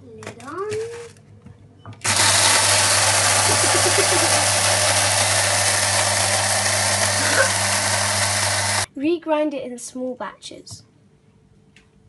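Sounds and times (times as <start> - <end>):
electric blade grinder whirring: 2.0 - 8.9.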